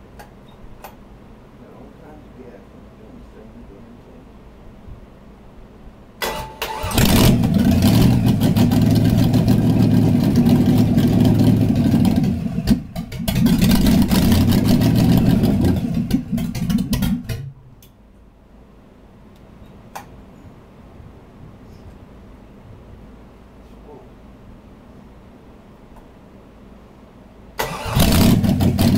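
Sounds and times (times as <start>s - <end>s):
engine starter cranking: 6.2s - 8.8s, 27.6s - 28.9s
engine running with open exhaust: 6.8s - 17.5s, 27.8s - 28.9s.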